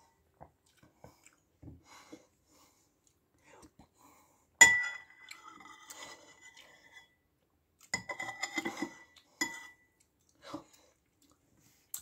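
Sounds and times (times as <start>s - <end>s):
metal spoon clinking on bowl: 4.6s - 5.8s, 7.9s - 9.8s
spoon scraping bowl: 4.8s - 7.2s, 8.0s - 9.9s.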